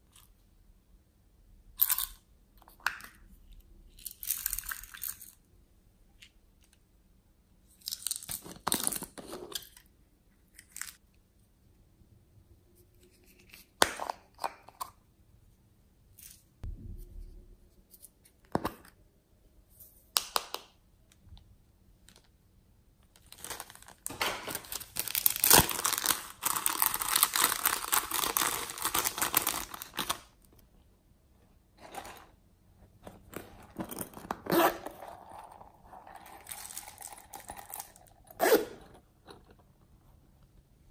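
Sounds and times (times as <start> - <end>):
zipper pulled: 33.9 - 35.6, 38.3 - 38.8.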